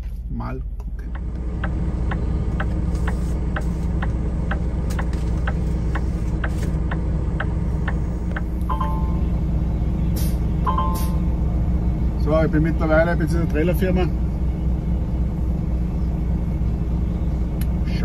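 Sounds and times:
diesel engine rumbling: 0:00.0 - 0:18.0
regular ticking: 0:00.8 - 0:09.0
two-tone beep: 0:08.7 - 0:09.3, 0:10.7 - 0:11.2.

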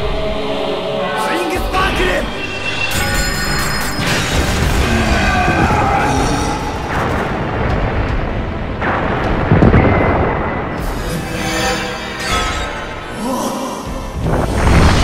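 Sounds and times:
rumbling explosions: 0:03.9 - 0:12.2, 0:14.0 - 0:15.0.

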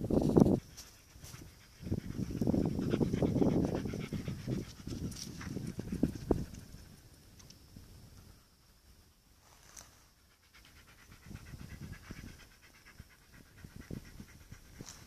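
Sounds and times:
dog panting quickly: 0:00.7 - 0:06.8, 0:10.3 - 0:15.0.

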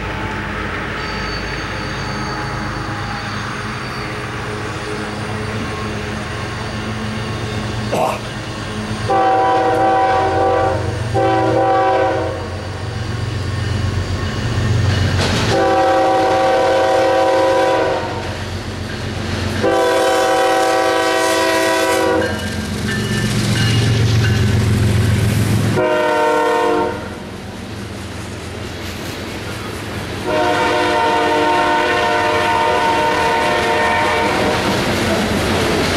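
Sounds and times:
low rumble of locomotive engines: 0:00.0 - 0:35.9
locomotive air horn blasts: 0:09.1 - 0:12.6, 0:15.5 - 0:18.3, 0:19.6 - 0:22.4, 0:25.7 - 0:27.2, 0:30.2 - 0:34.6
train wheels clacking: 0:12.9 - 0:16.4, 0:18.2 - 0:20.3, 0:21.2 - 0:25.8, 0:27.4 - 0:30.3, 0:32.8 - 0:35.9.

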